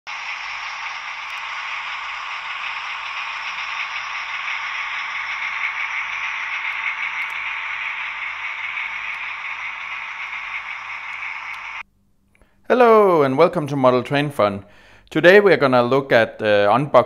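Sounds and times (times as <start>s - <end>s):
model train running on track: 0.1s - 11.8s.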